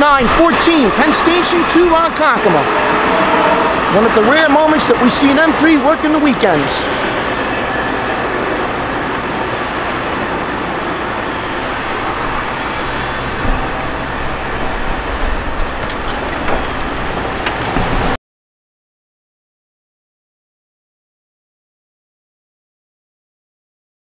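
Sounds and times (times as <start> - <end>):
electric train rumbling: 0.0 - 18.2.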